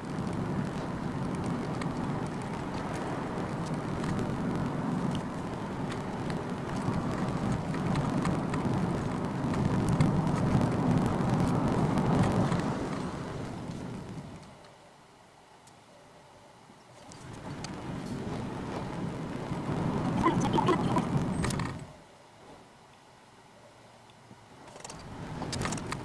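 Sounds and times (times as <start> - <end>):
passing train rumble: 0.0 - 14.5, 17.2 - 21.9
car road and tyre noise: 0.0 - 26.0.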